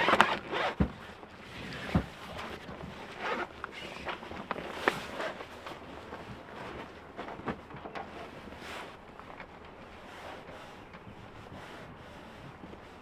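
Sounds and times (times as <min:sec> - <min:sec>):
zipper unzipping: 0:00.0 - 0:00.8, 0:03.1 - 0:04.1
canvas rustling: 0:00.0 - 0:13.0.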